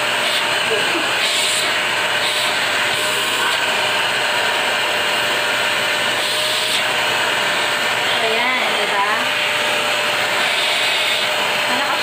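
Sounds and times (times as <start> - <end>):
handheld vacuum cleaner running: 0.0 - 12.0.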